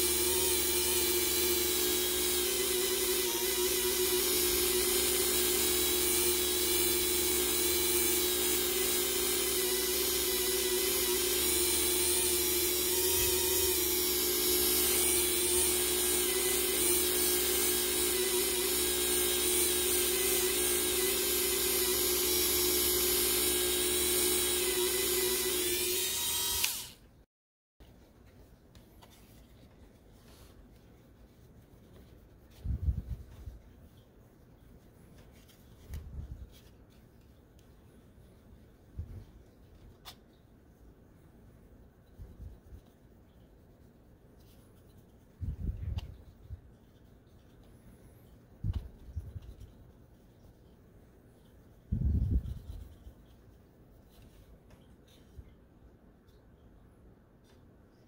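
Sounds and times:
rotary tool high whine: 0.0s - 27.1s
polishing cloth rubbing: 28.0s - 37.1s, 49.0s - 55.4s.

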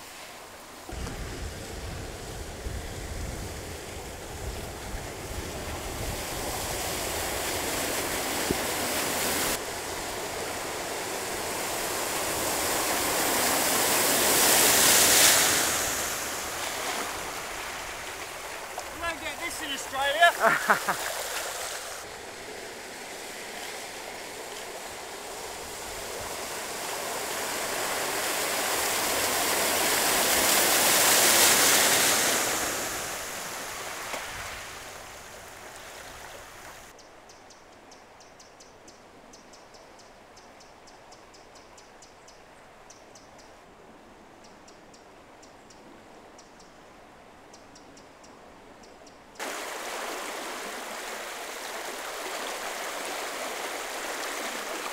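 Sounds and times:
fast-flowing floodwater rushing: 3.8s - 36.9s, 49.4s - 54.9s.

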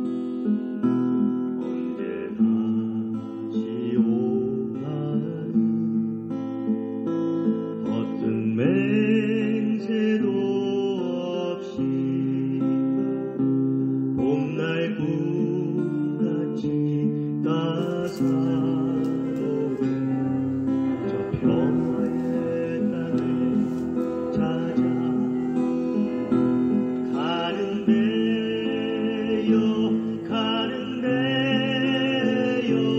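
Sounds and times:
acoustic guitar: 0.0s - 32.9s
person singing: 17.5s - 32.9s.

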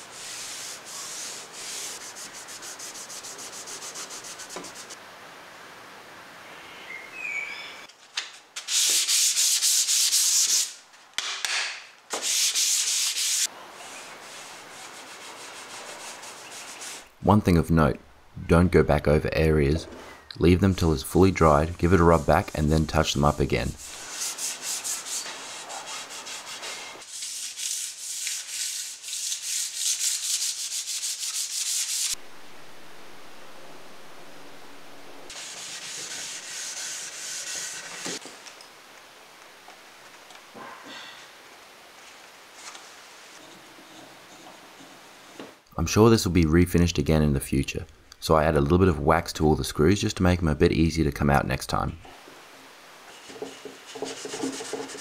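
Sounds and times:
cloth rag rubbing wood: 0.0s - 5.0s, 12.2s - 17.1s, 20.5s - 32.2s, 35.3s - 38.2s, 53.1s - 55.0s
hand sanding wood: 0.0s - 5.0s, 8.6s - 10.8s, 12.1s - 17.1s, 20.5s - 32.2s, 35.3s - 38.2s, 53.1s - 55.0s
steady hiss: 0.0s - 6.5s, 19.4s - 40.6s.

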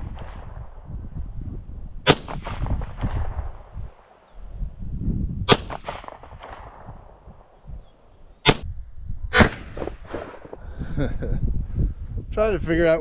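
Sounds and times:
wind buffeting microphone: 0.0s - 13.0s
pistol shots: 2.0s - 3.4s, 5.5s - 6.9s, 8.4s - 8.7s.

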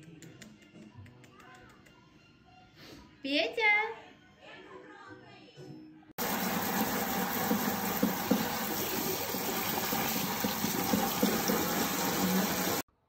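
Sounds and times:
water spraying into sink: 6.2s - 12.9s.

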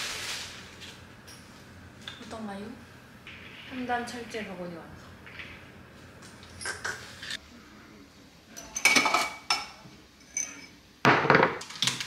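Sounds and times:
dishes and glassware clinking: 6.4s - 7.0s, 8.5s - 11.6s.

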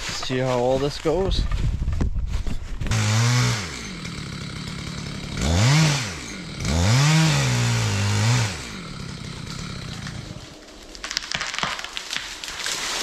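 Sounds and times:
chainsaw revving: 2.9s - 10.7s.

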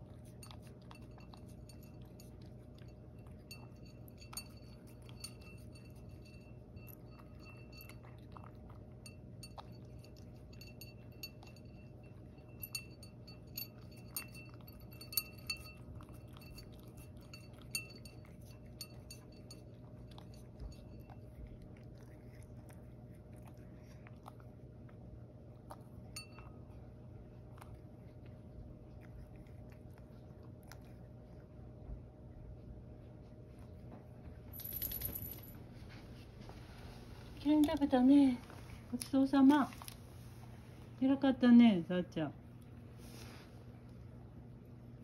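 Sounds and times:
mouth clinking ceramic bowl: 0.0s - 21.6s, 26.1s - 26.7s
cat chewing: 0.0s - 34.5s.

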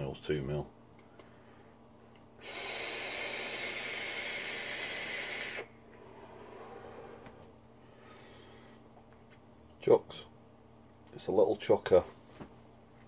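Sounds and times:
air hissing through vape tank: 2.4s - 5.7s
breathy exhale: 2.4s - 8.8s.

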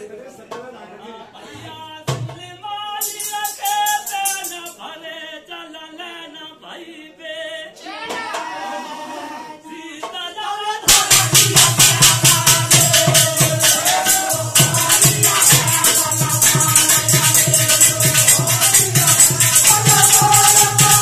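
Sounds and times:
fast rhythmic percussion: 2.1s - 4.8s, 10.8s - 21.0s
jingling shaker: 3.0s - 4.8s, 11.8s - 21.0s
person singing devotional song: 9.7s - 21.0s.

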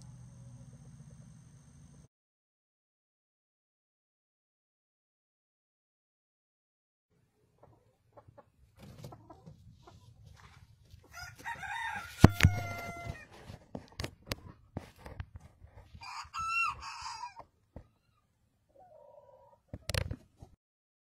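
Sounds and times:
chickens clucking: 7.3s - 11.1s, 16.3s - 20.6s.

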